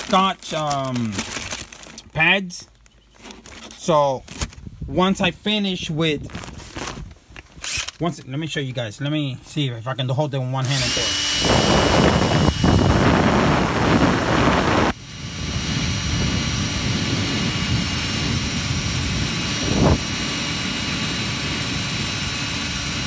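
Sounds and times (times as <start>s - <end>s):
drill bristle disc scrubbing metal: 10.6s - 14.8s.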